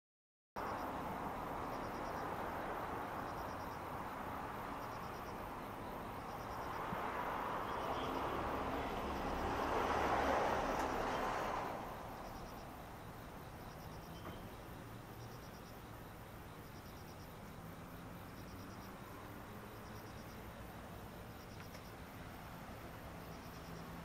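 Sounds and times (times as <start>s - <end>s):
insects chirping in rapid trills: 0.6s - 24.0s
rushing noise of passing object: 6.6s - 12.3s.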